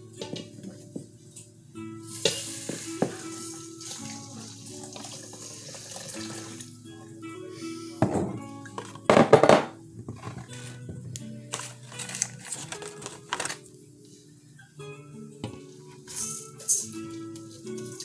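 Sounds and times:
background music: 0.0s - 18.0s
metal bowl clattering: 0.2s - 0.6s, 2.1s - 6.7s, 8.0s - 13.6s
water pouring into bowl: 2.1s - 6.7s.

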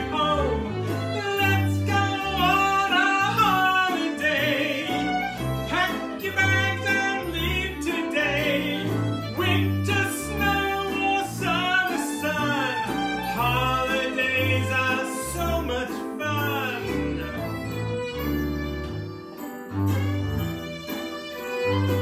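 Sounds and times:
man singing: 0.0s - 17.4s
banjo: 0.0s - 22.0s
fiddle: 0.0s - 22.0s
upright double bass: 0.0s - 22.0s.

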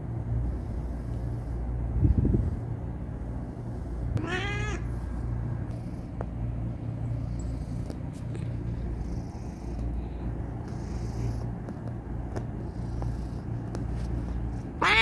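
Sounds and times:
cat meow: 4.2s - 4.9s, 14.8s - 15.0s
cat purring: 7.2s - 14.6s.

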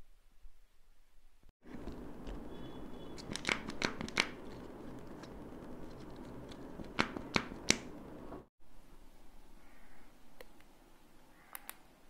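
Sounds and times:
plastic eggs clicking: 3.2s - 5.4s.

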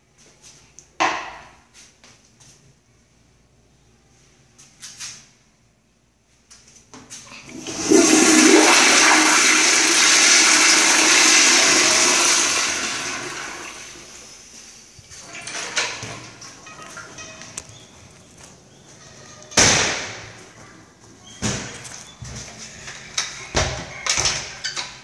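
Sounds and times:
toilet flushing water rush: 7.4s - 14.3s.

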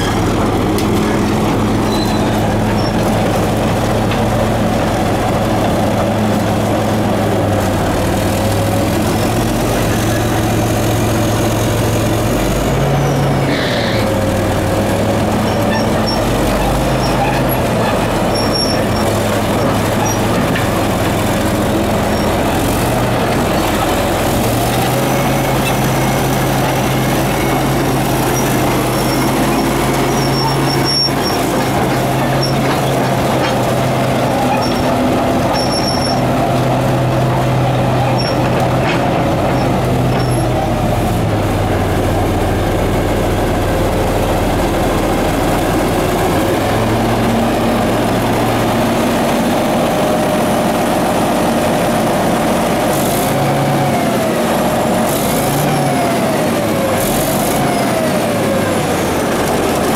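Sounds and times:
dozer diesel engine running: 0.0s - 59.9s
short high squeaks: 1.8s - 3.0s, 13.0s - 14.1s, 27.1s - 33.6s, 34.5s - 36.2s.

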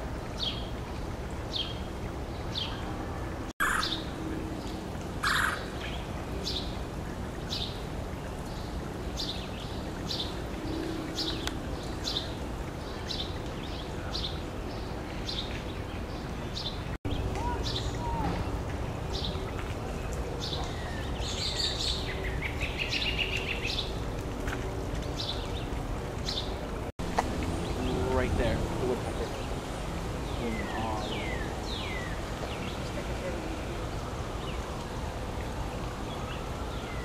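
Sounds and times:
woodpecker calling: 3.6s - 4.1s, 5.2s - 5.8s.

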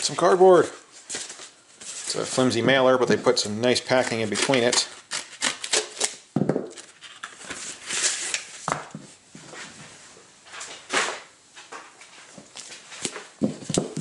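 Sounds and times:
scissors cutting cardboard: 3.9s - 6.9s
cardboard rustling and scraping: 6.7s - 11.2s.

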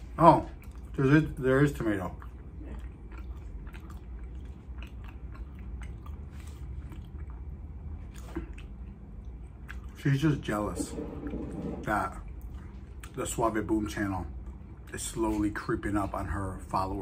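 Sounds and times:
person chewing food: 0.0s - 10.0s, 12.2s - 13.6s
steady low hum: 0.0s - 17.0s.

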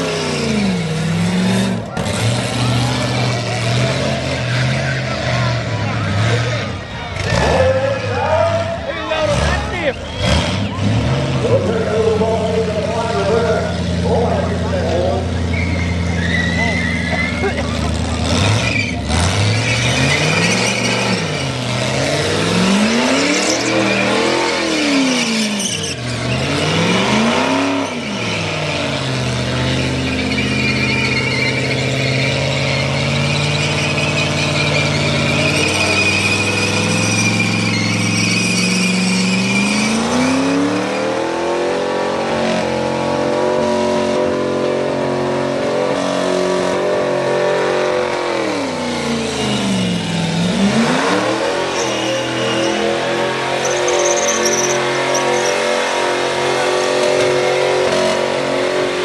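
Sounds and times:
car engine revving hard: 0.0s - 59.0s
tyres squealing: 1.9s - 12.3s, 15.2s - 41.2s, 48.5s - 59.0s.

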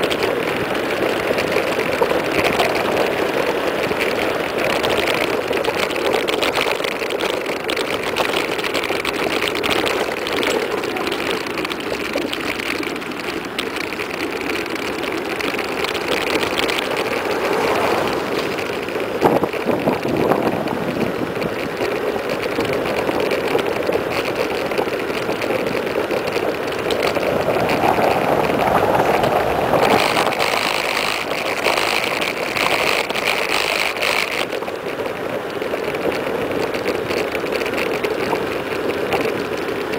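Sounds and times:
bicycle tyre noise on road: 0.0s - 39.9s
wind rush: 15.7s - 21.8s, 26.8s - 30.4s.

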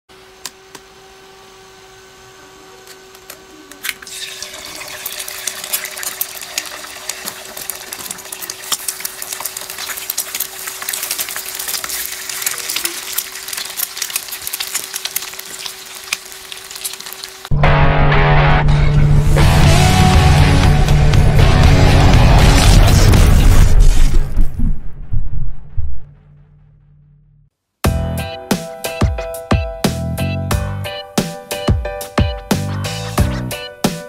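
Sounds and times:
egg cracking: 3.8s - 17.5s
egg sizzling in oil: 4.0s - 17.5s.

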